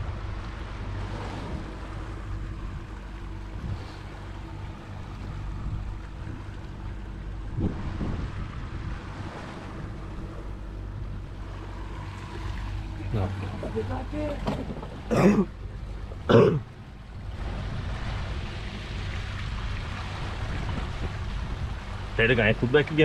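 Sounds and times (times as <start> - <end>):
wind noise on microphone: 0.0 - 11.7, 16.7 - 23.0
outboard motor running: 0.0 - 23.0
water rushing against hull: 0.0 - 23.0.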